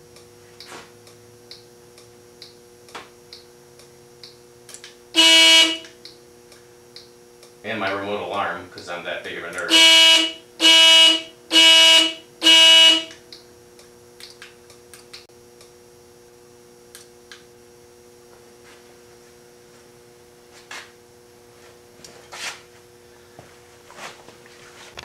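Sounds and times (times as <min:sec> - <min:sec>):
faint steady hum: 0:00.0 - 0:25.0
alarm electronic beeps: 0:05.2 - 0:05.9, 0:09.7 - 0:13.1.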